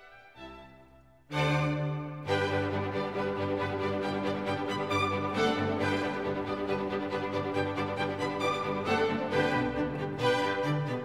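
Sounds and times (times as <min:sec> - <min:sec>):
instrumental music with held notes: 0:00.0 - 0:11.0.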